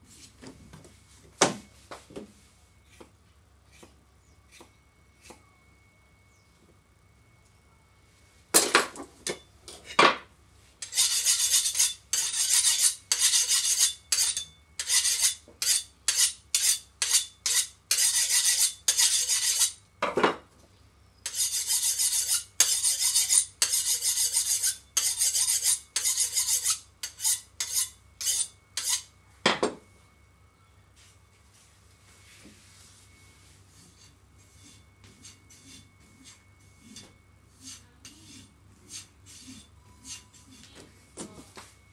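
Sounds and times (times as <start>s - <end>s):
blade scraping sharpening rod: 10.8s - 19.8s, 21.2s - 29.1s, 33.8s - 40.7s.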